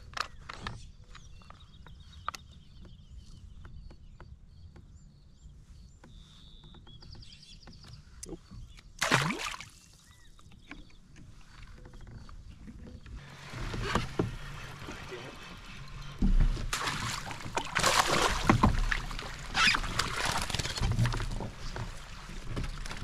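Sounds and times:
small birds chirping: 0.0 - 16.3
fish splashing into water: 9.0 - 9.9, 16.7 - 21.2.

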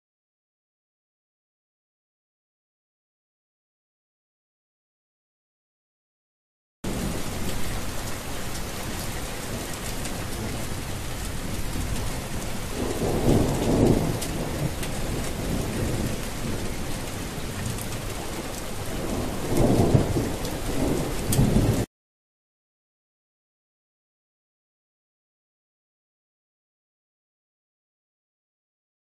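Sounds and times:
steady rain: 6.8 - 21.9
low rumbles of thunder: 6.9 - 8.2, 8.9 - 21.9.

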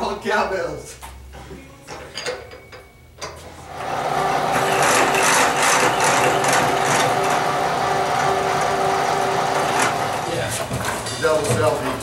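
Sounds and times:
milling machine running: 3.7 - 12.0.

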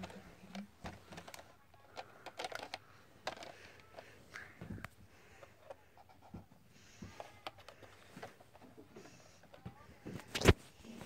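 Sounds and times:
plastic toy truck clicking: 0.0 - 4.1.

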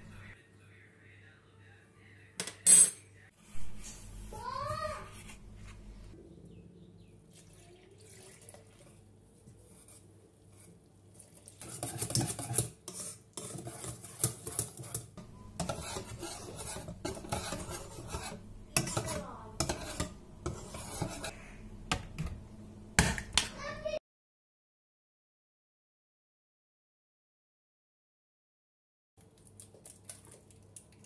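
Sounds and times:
batter stirred in a bowl: 7.4 - 21.4, 29.2 - 31.0.

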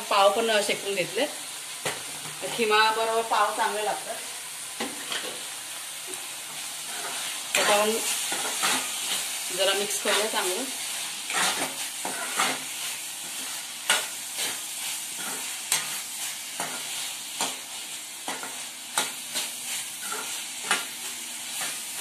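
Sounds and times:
meat sizzling in a pan: 0.0 - 22.0
spatula scraping a pan: 6.1 - 22.0.

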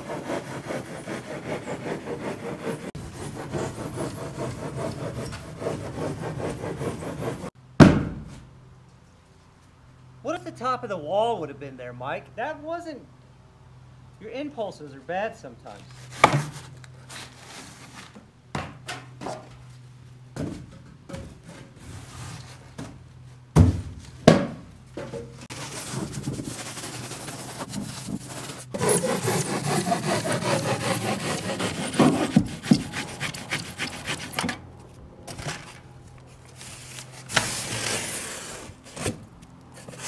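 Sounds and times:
hand saw cutting foam: 0.0 - 7.5, 25.5 - 34.6, 36.7 - 40.0
knocks and scrapes: 0.0 - 7.5, 20.4 - 40.0.

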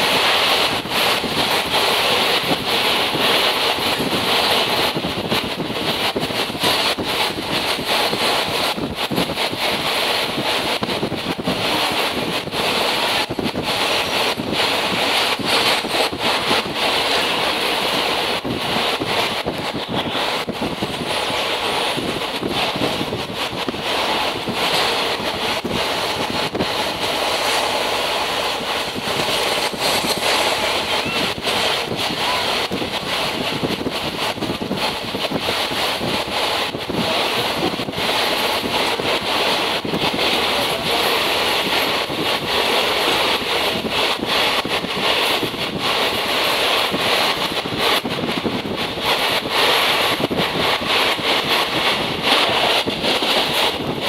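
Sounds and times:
moving train running noise: 0.0 - 54.0
wind buffeting microphone: 0.0 - 54.0.

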